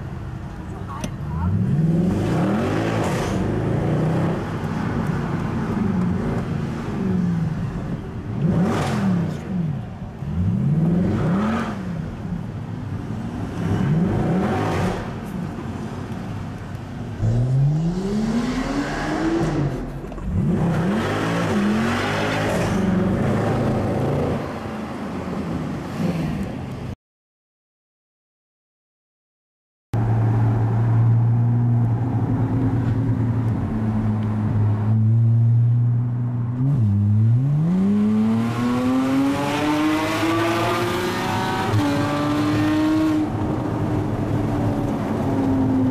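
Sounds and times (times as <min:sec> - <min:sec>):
car engine revving: 0:17.2 - 0:24.6, 0:33.6 - 0:45.6.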